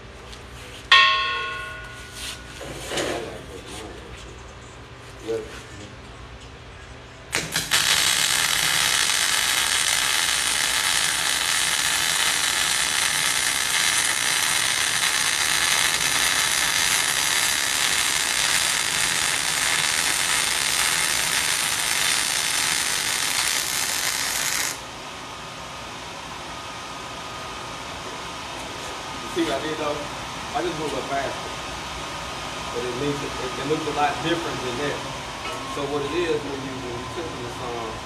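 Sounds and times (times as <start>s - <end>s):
steady background hum: 0.0s - 38.0s
welding arc crackling: 7.3s - 24.9s.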